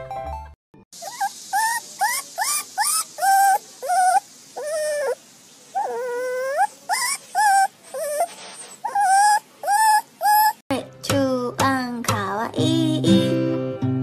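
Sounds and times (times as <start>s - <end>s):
puppy whining: 1.0s - 10.6s.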